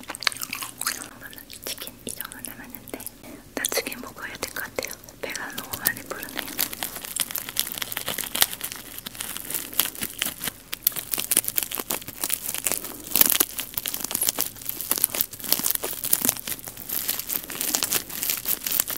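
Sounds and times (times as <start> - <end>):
close crinkling and crackling: 0.0 - 18.9.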